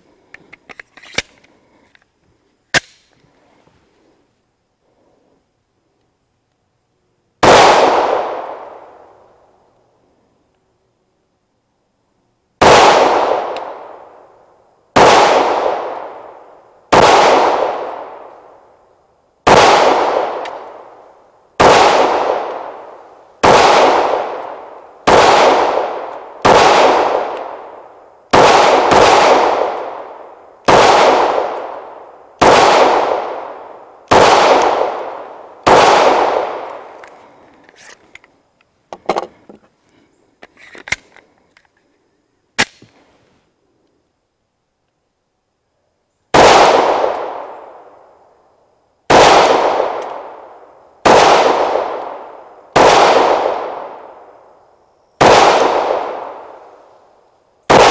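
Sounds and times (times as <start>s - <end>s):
pistol shots echoing: 7.4s - 8.9s, 12.6s - 14.0s, 15.0s - 16.3s, 16.9s - 18.3s, 19.4s - 20.9s, 21.6s - 36.9s, 46.3s - 47.5s, 49.1s - 54.3s, 55.2s - 56.7s, 57.7s - 57.9s.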